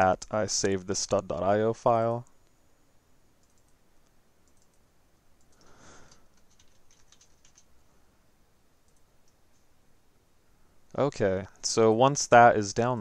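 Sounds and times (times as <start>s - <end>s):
soft hiss: 0.0s - 13.0s
keyboard typing: 3.4s - 3.8s, 4.4s - 7.7s, 8.8s - 9.4s
mouse clicks: 3.4s - 4.8s.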